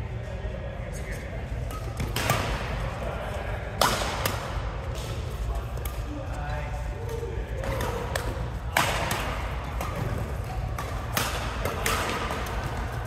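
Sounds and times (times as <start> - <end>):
racket hitting shuttlecock: 1.7 - 2.9, 3.7 - 6.1, 7.0 - 13.0.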